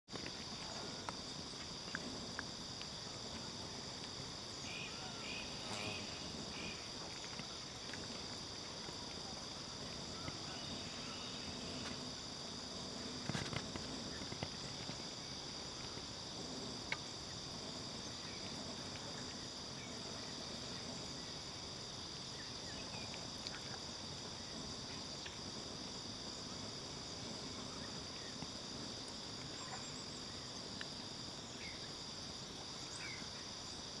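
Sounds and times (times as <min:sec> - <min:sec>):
insect chorus drone: 0:00.1 - 0:34.0.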